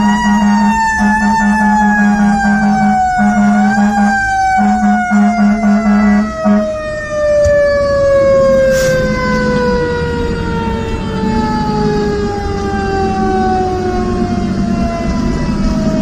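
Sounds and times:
mechanical siren winding down: 0.0 - 16.0
truck engine and road rumble: 0.0 - 16.0
short horn blasts: 0.2 - 6.7.

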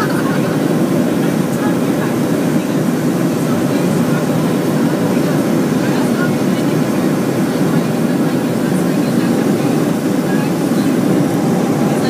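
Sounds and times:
airliner cabin engine rush: 0.0 - 12.0.

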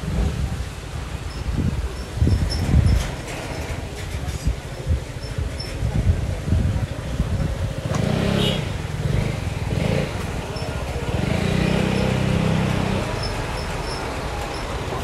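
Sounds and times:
motor scooter passing: 7.6 - 15.0.

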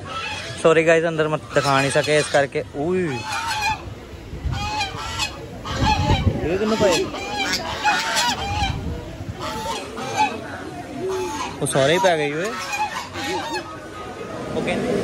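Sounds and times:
geese honking: 0.0 - 15.0.

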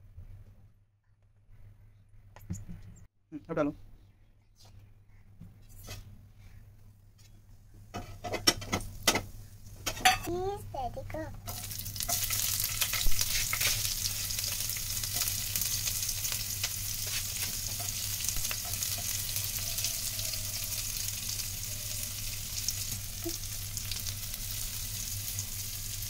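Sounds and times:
onions sizzling in hot oil: 11.3 - 26.0
spoon scraping a pan: 11.5 - 15.3.

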